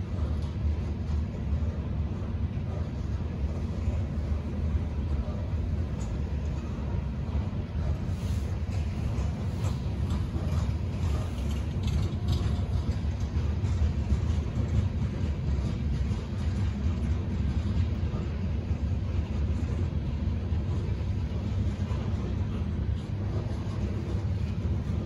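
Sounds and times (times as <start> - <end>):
train wheels rumbling on rail: 0.0 - 25.0
light clicks and clanks: 5.1 - 25.0.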